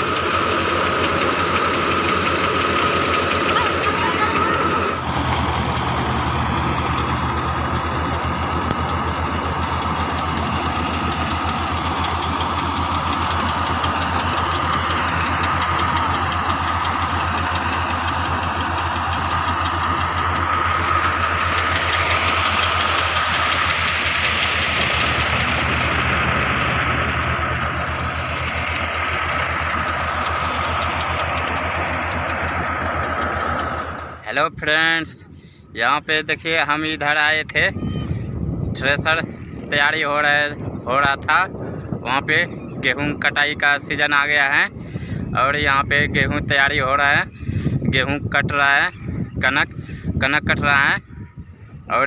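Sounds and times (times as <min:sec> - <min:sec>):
thresher whine and rushing: 0:00.0 - 0:35.3
tractor diesel engine throbbing: 0:00.0 - 0:52.0.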